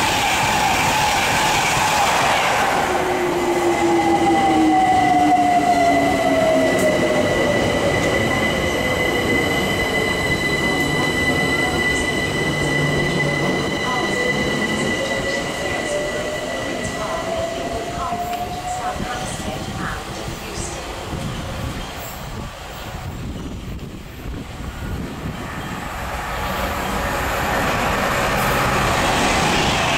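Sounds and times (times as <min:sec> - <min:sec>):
high-pitched squeal: 0:00.0 - 0:19.2
train rushing past: 0:00.0 - 0:29.9.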